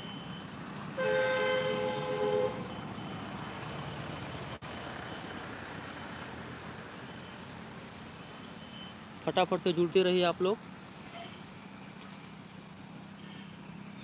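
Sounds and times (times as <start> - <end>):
two-note vehicle horn: 1.0 - 2.7.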